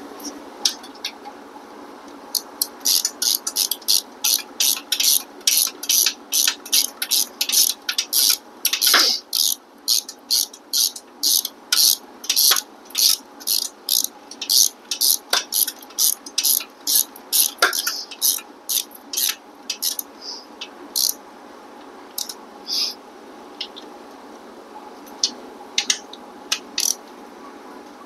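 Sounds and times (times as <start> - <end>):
hand ratchet clicking: 2.3 - 20.1, 21.0 - 21.2, 22.2 - 22.4, 25.8 - 27.0.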